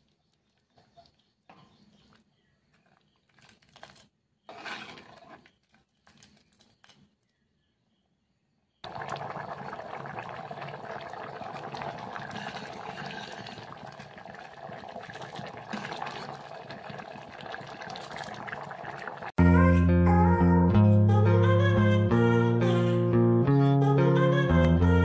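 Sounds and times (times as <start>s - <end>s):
dal bubbling and popping: 8.8s - 19.4s.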